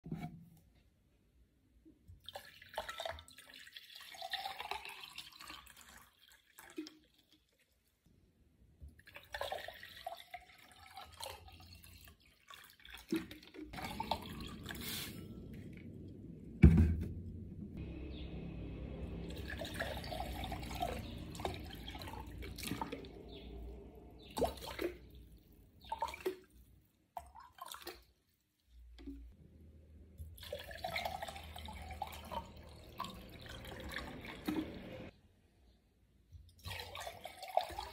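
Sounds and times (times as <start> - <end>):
water pouring into glass tumblers: 2.3 - 7.5, 9.1 - 15.6, 18.9 - 25.2, 30.4 - 35.1, 36.6 - 37.9
low rumble: 13.8 - 24.4.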